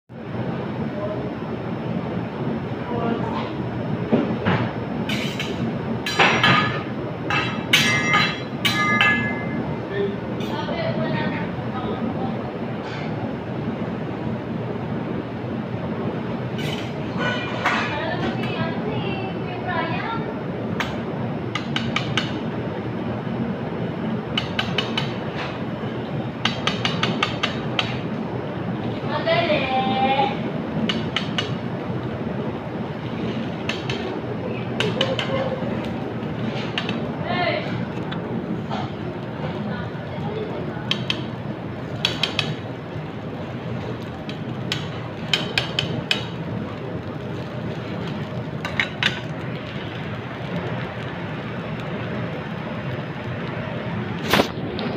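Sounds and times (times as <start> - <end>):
steady background hum: 0.1 - 54.9
steady background noise: 0.1 - 54.9
utensils tapping metal griddle: 5.1 - 9.6, 26.4 - 28.0, 30.9 - 31.6, 33.3 - 34.1, 34.8 - 35.5, 40.9 - 42.6, 44.0 - 46.4, 48.1 - 49.3
metal spatula tapping: 40.9 - 41.2, 42.0 - 42.6.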